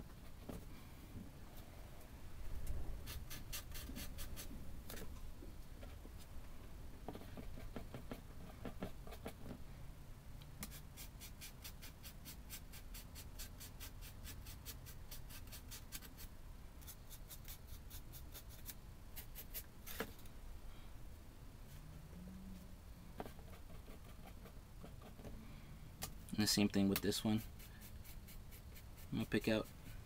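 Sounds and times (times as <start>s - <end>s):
scratchy paintbrush strokes: 26.6s - 30.0s.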